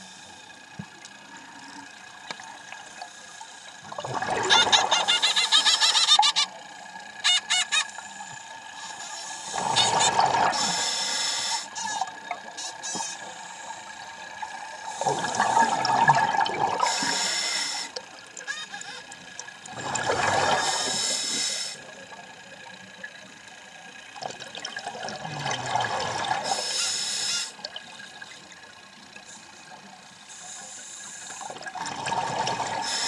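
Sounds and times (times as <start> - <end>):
regulator hiss: 10.5 - 15.8, 16.8 - 18.2, 20.6 - 22.1, 26.4 - 27.6, 29.2 - 31.5, 32.8 - 33.0
regulator exhale bubbling: 14.7 - 17.9, 19.7 - 21.8, 31.3 - 33.0.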